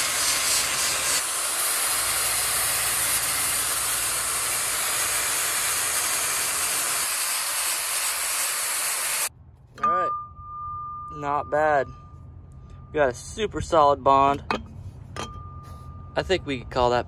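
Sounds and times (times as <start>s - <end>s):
angle grinder sanding resin: 0.0s - 9.3s.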